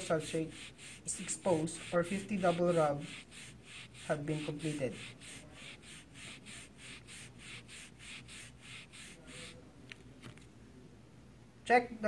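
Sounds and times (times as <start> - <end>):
cloth scrubbing a plate: 0.0 - 9.6.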